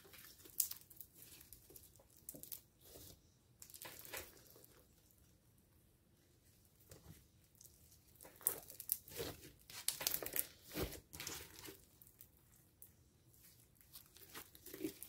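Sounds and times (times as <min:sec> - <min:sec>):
slime crackling and popping: 0:00.1 - 0:02.6, 0:08.2 - 0:12.3.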